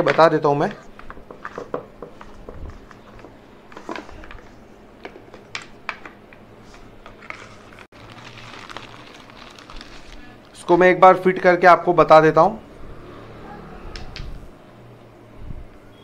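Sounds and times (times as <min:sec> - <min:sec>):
plastic bag rustling: 0:06.7 - 0:10.7.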